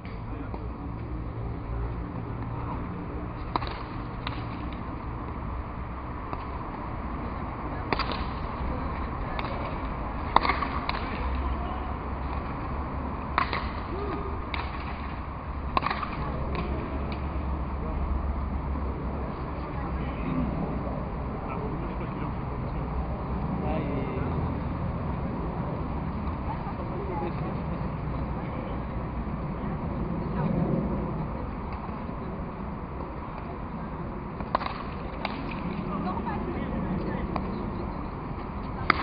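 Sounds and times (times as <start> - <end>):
low steady rumble: 0.0 - 39.0
ball cracking off wooden bat: 3.4 - 4.8, 7.9 - 8.5, 9.4 - 11.4, 13.3 - 13.9, 14.5 - 17.2, 34.4 - 35.8.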